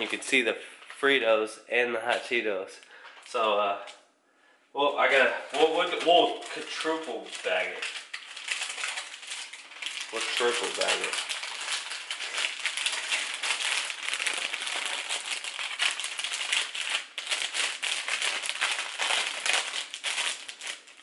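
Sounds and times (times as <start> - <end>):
plastic bags crinkling: 0.0 - 1.0, 5.0 - 21.0.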